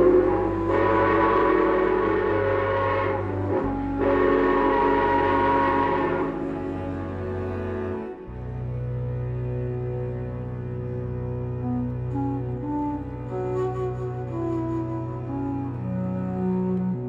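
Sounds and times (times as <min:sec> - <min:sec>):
steam hissing: 0:00.0 - 0:06.3
steam locomotive whistle: 0:00.0 - 0:07.0
soft background music: 0:00.0 - 0:17.0.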